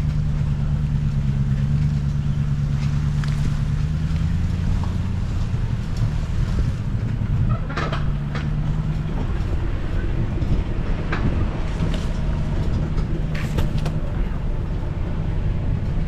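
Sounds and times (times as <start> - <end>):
vehicle engine running: 0.0 - 16.0
vehicle knocks and rattles: 0.0 - 16.0.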